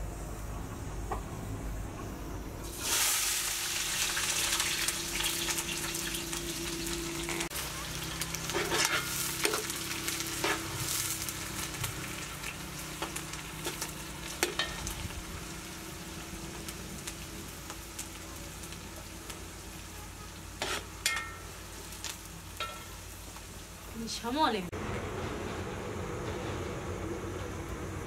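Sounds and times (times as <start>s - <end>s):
vegetables sizzling in oil: 2.6s - 24.7s
metal ladle scraping pot: 8.5s - 9.7s, 20.6s - 21.5s.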